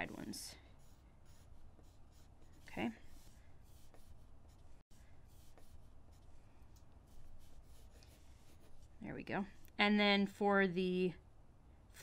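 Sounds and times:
pencil scratching on paper: 0:00.0 - 0:09.0.

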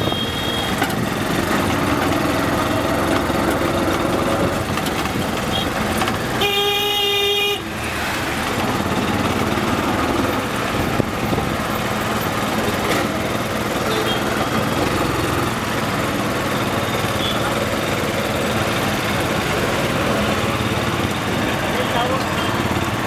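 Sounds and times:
vehicle horn blaring: 0:00.0 - 0:00.9, 0:05.5 - 0:07.7, 0:13.8 - 0:14.6, 0:17.1 - 0:17.6
street traffic noise: 0:00.0 - 0:23.0
small engine running: 0:10.8 - 0:23.0.

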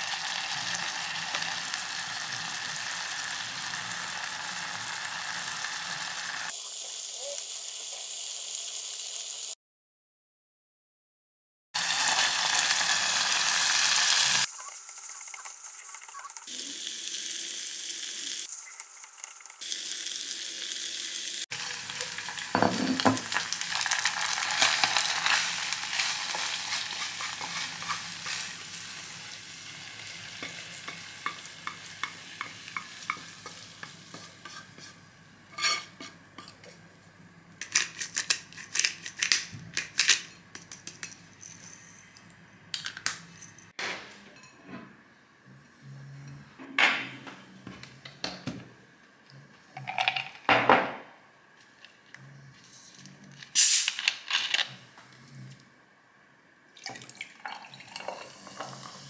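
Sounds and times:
sauce sizzling in saucepan: 0:00.0 - 0:09.6, 0:11.8 - 0:35.1
spatula scraping a pan: 0:24.6 - 0:28.6, 0:33.2 - 0:36.2.

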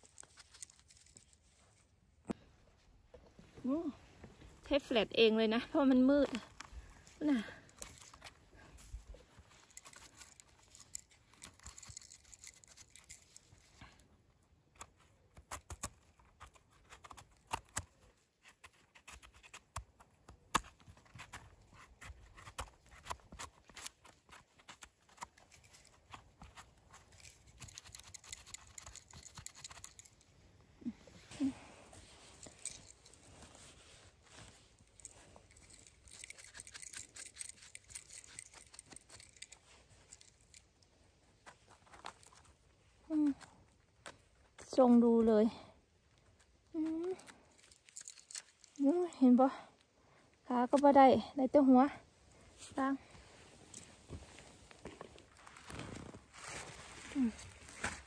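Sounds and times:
knife scraping mushroom stem: 0:14.8 - 0:30.0.

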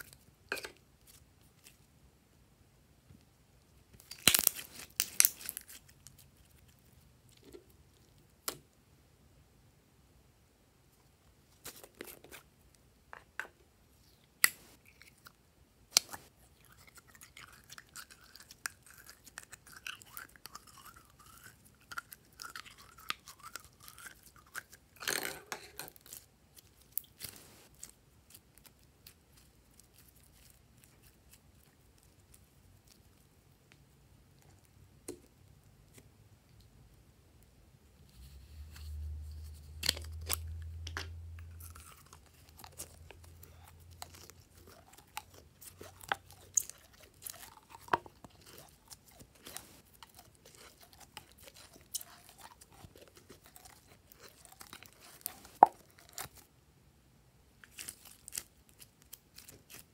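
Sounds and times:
slime squelching and crackling: 0:04.0 - 0:08.1, 0:39.5 - 0:56.5.

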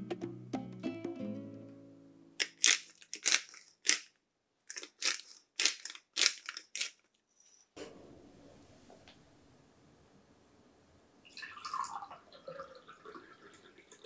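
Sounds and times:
pepper mill grinding: 0:02.4 - 0:07.1.

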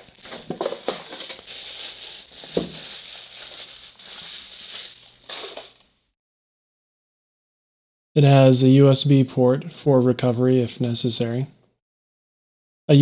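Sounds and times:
packaging rustling and crinkling: 0:00.0 - 0:05.9.

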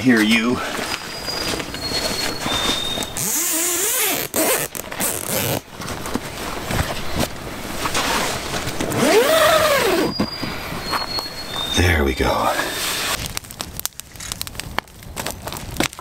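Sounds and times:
tent zipper being zipped: 0:01.3 - 0:05.7, 0:06.6 - 0:10.2, 0:12.6 - 0:13.2.

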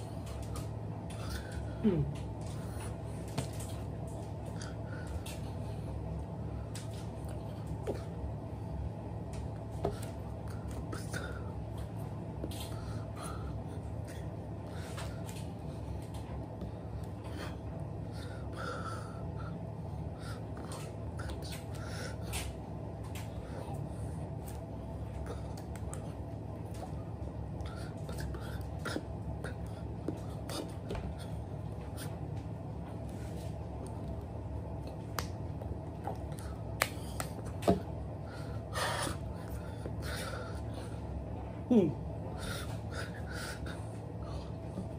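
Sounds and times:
low room hum: 0:00.0 - 0:44.9
hand and mouth clicks and slaps: 0:34.9 - 0:37.9.

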